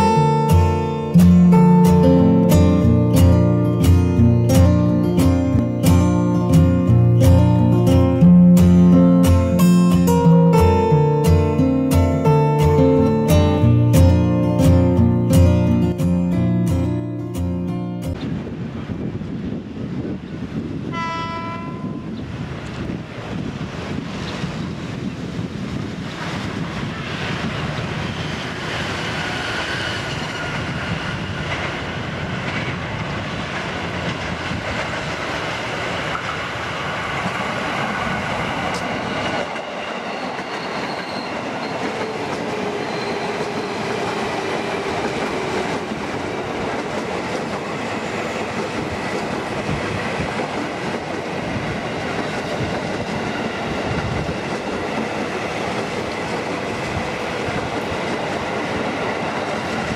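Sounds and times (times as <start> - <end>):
electric train passing: 0.0 - 59.9
train wheels clattering on rails: 22.6 - 59.9.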